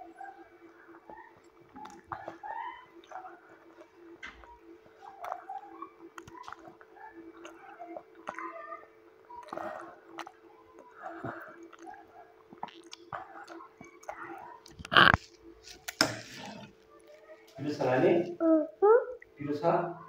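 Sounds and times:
child chewing and slurping noodles: 0.0s - 19.0s
faint steady hum: 0.0s - 20.0s
wet mouth sounds: 1.4s - 8.5s, 9.4s - 17.1s.

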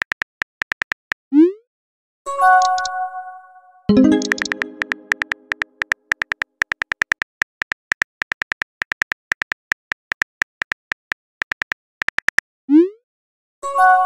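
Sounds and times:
keyboard typing clicks: 0.0s - 1.2s, 2.6s - 3.0s, 3.9s - 12.4s.

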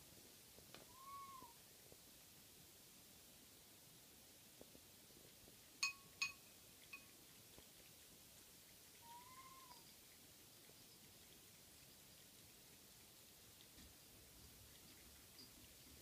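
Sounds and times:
cat meowing: 0.9s - 1.6s, 9.0s - 9.8s.

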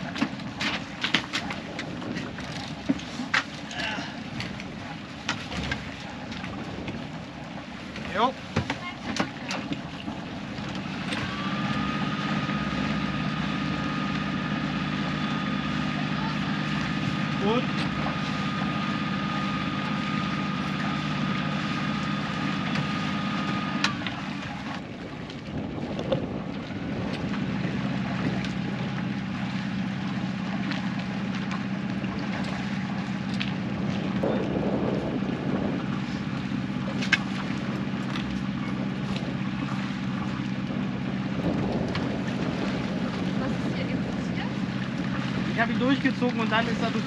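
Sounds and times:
boat engine running: 0.0s - 47.0s
wind noise on microphone: 1.4s - 3.0s, 23.9s - 29.4s, 33.3s - 45.6s.

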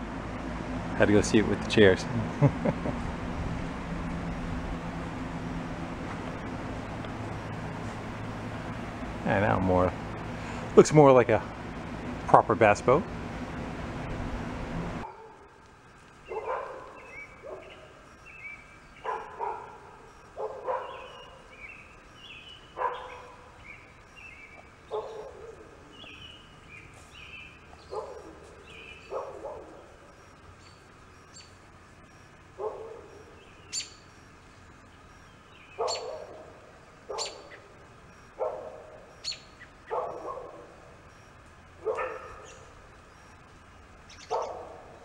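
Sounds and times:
small birds chirping: 6.0s - 13.7s, 15.0s - 45.0s
dog barking: 15.0s - 15.5s, 16.3s - 18.0s, 19.0s - 21.4s, 22.8s - 23.5s, 24.9s - 25.8s, 27.9s - 30.0s, 32.6s - 33.4s, 35.8s - 37.6s, 38.4s - 39.1s, 39.9s - 40.8s, 41.8s - 42.7s, 44.3s - 45.0s.

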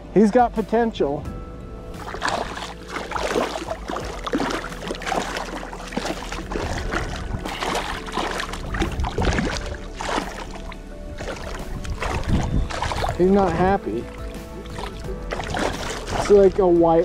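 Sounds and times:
fish splashing in water: 2.0s - 16.6s.

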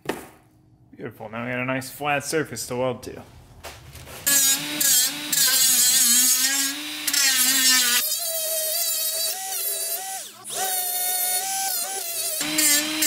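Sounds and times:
power tool motor whine: 4.3s - 13.0s.

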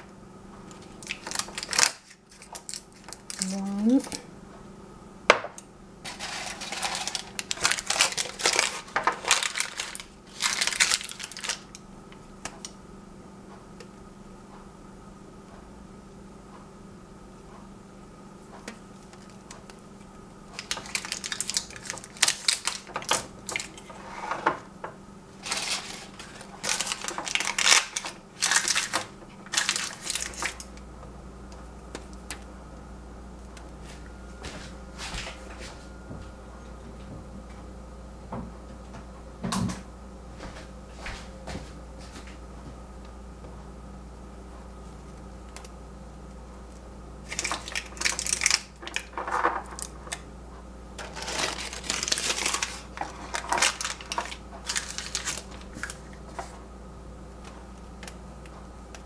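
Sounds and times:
paper crinkling: 1.0s - 3.6s, 6.1s - 11.8s, 20.5s - 24.0s, 25.4s - 30.7s, 47.2s - 50.2s, 51.0s - 56.5s.

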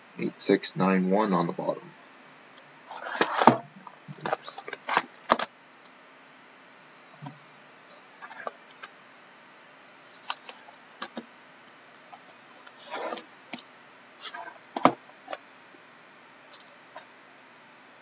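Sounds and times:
plastic wrap rustle: 2.8s - 5.4s.

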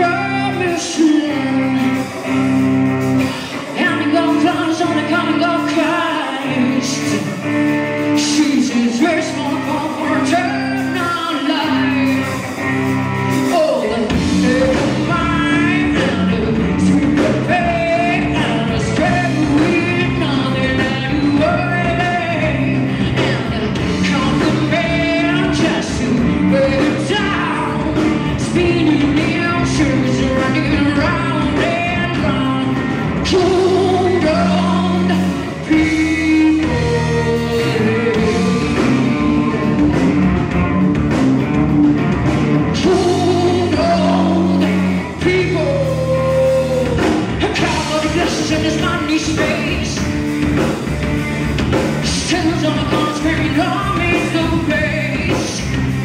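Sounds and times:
bass guitar: 0.0s - 56.0s
drums: 0.0s - 56.0s
electric guitar: 0.0s - 56.0s
woman singing: 13.5s - 39.9s, 42.8s - 50.0s.

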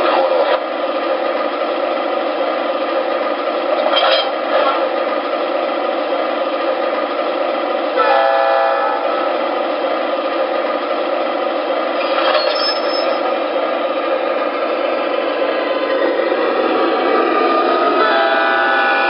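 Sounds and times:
diesel engine idling: 0.0s - 12.4s, 13.0s - 19.0s
locomotive horn blast: 8.0s - 9.3s, 18.0s - 19.0s.

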